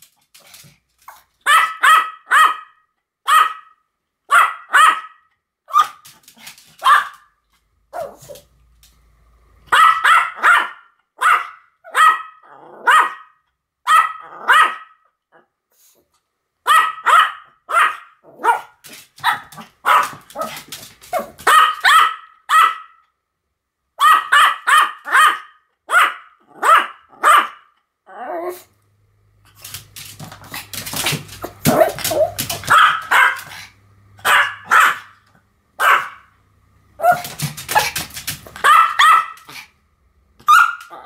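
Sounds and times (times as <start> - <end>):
small dog barking: 1.4 - 6.1, 6.8 - 7.3, 7.9 - 8.4, 9.7 - 15.0, 16.6 - 23.0, 24.0 - 27.7, 31.6 - 33.6, 34.2 - 35.2, 35.8 - 36.3, 37.0 - 39.6, 40.4 - 41.0.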